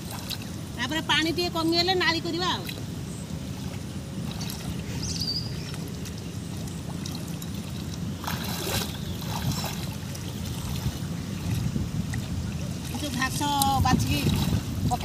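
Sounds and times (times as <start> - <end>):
steady low rumble: 0.0 - 15.0
hands splashing in muddy water: 5.7 - 12.2.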